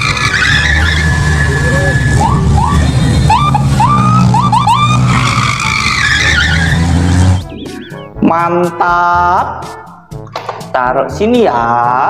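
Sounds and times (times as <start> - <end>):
car engine running: 0.0 - 8.1
short rising squeals: 3.8 - 7.5.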